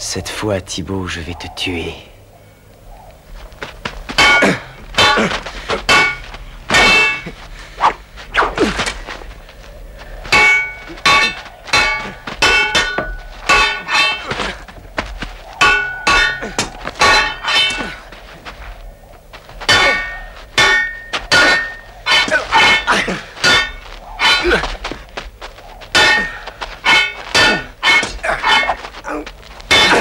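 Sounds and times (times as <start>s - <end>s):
swords clashing: 4.2s - 7.3s, 10.4s - 14.6s, 15.6s - 18.2s, 19.7s - 25.0s, 26.0s - 30.0s.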